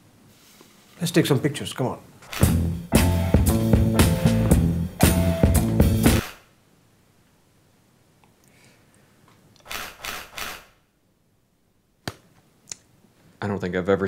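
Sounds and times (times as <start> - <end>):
camera shutter firing: 2.3 - 2.6, 6.2 - 6.5, 9.6 - 10.8
theme tune note: 2.4 - 6.2.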